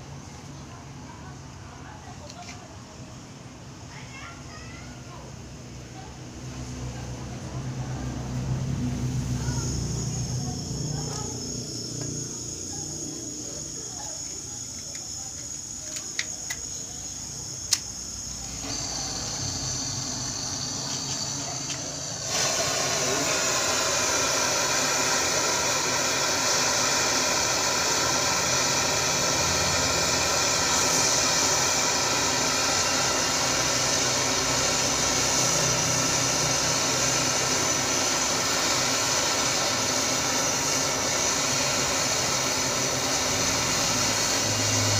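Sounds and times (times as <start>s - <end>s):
butane torch flame hissing: 6.0s - 44.9s
sharp clicks: 17.6s - 18.0s.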